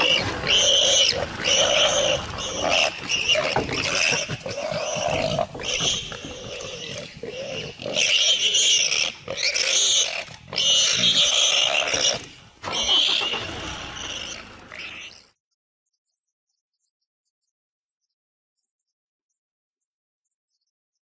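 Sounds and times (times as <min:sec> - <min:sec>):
big cat growling: 0:00.0 - 0:15.2
pig squealing harshly: 0:00.0 - 0:15.3.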